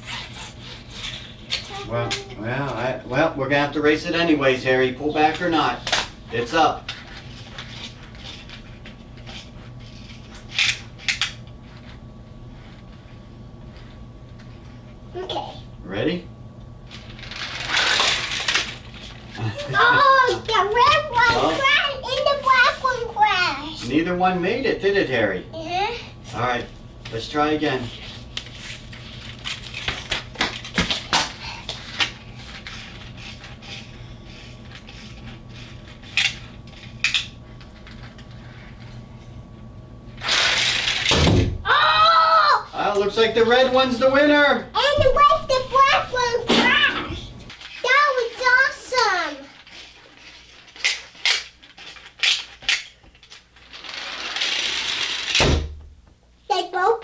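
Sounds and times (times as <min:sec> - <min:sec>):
toy cars clicking and rattling: 0:16.9 - 0:18.9, 0:40.2 - 0:41.1, 0:47.6 - 0:55.4
toy cars clattering: 0:16.9 - 0:19.1, 0:40.2 - 0:41.1, 0:47.6 - 0:55.4.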